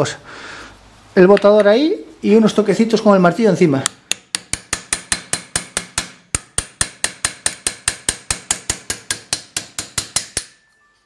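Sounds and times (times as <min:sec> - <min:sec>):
hammer tapping metal punch: 0:03.8 - 0:10.7.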